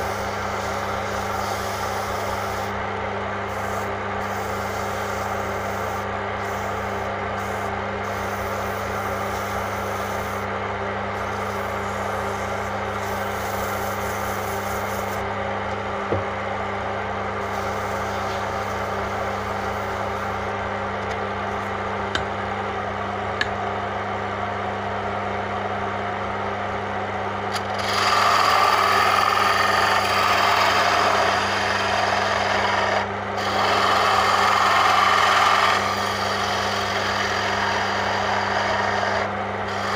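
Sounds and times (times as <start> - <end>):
chisel scraping spinning wood: 0.0 - 2.8, 11.2 - 15.3, 17.4 - 21.2, 27.5 - 39.9
lathe motor humming: 0.0 - 16.2, 16.9 - 22.6, 27.4 - 39.9.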